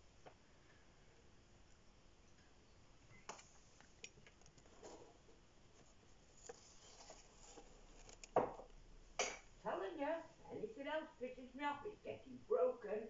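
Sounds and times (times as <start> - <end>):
faint clicks and knocks: 3.2 - 8.8.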